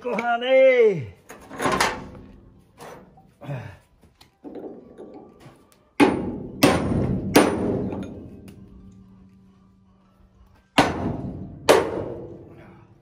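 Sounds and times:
hammer striking steel: 6.0 - 8.6, 10.8 - 12.5.

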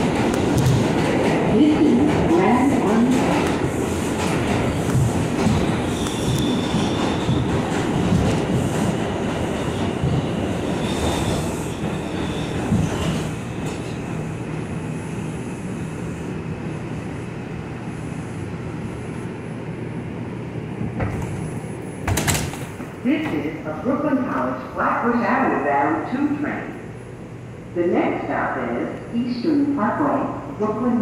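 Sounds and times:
subway train wheels rumbling: 0.0 - 31.0
high wheel squeals: 10.8 - 13.2.

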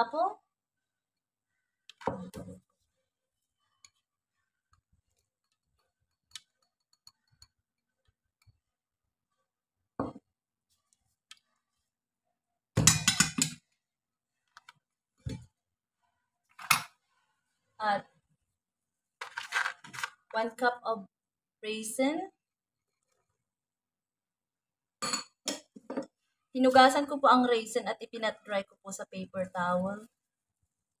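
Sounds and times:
kitchen clicks and clinks: 12.8 - 13.6.

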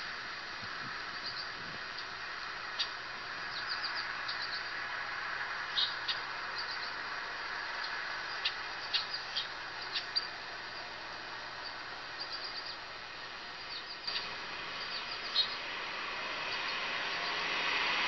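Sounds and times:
high bird chirps: 2.8 - 4.7, 5.7 - 7.0, 7.8 - 10.4, 11.6 - 12.9, 13.6 - 15.7.

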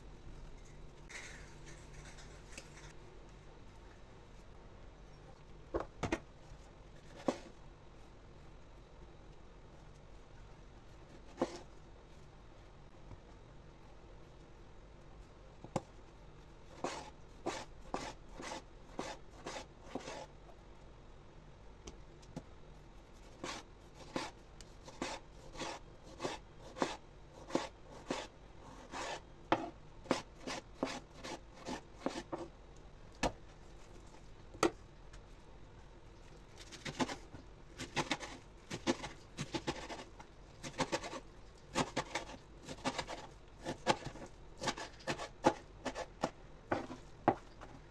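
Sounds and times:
knife slicing vegetables: 23.4 - 32.5, 36.6 - 37.2, 37.8 - 47.0.

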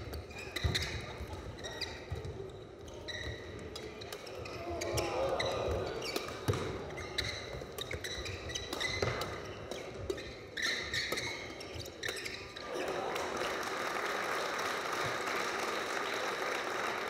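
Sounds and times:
shoes squeaking on court floor: 0.0 - 12.7
rackets hitting shuttlecock: 3.4 - 12.7
spectators applauding: 12.6 - 17.0.

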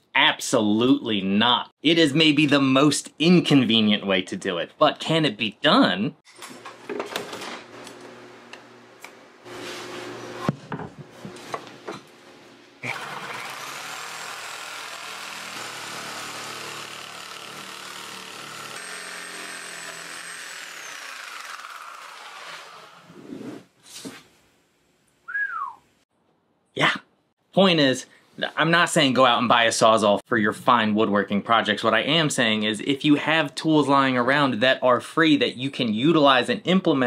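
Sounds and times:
reciprocating saw cutting wood: 12.8 - 23.7.

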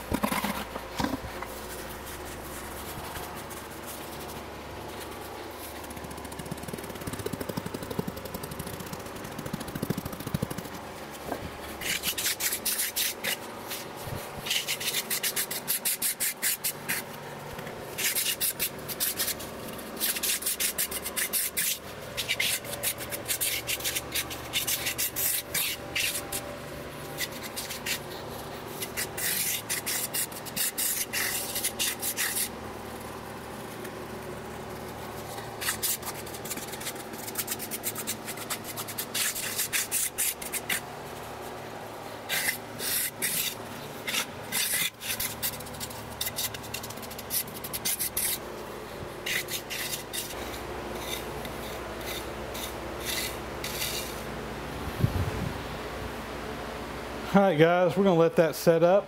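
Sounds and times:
trowel scraping packed material: 49.2 - 54.2.

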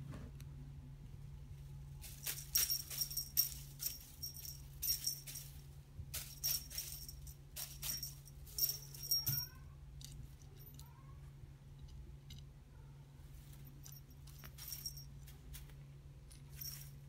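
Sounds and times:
steady low hum: 0.0 - 17.0
tinsel and ball chain jingling: 2.0 - 9.6, 13.4 - 17.0.

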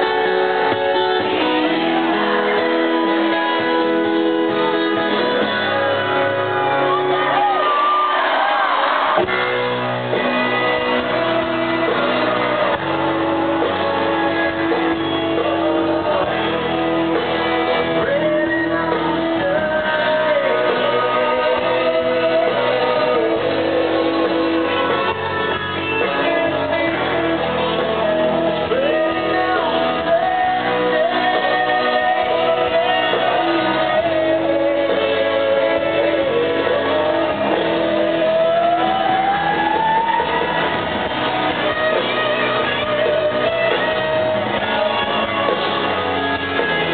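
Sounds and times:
country-rock band playing live: 0.0 - 46.9
electric guitar: 0.0 - 46.9
man singing into a microphone: 10.1 - 46.9.

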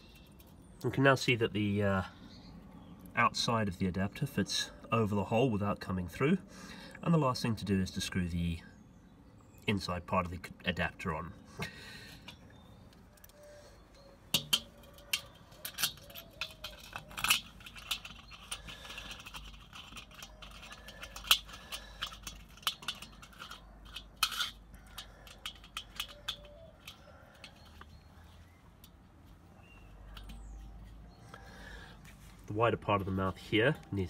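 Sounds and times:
light metallic clicks and clinks: 12.2 - 28.2.

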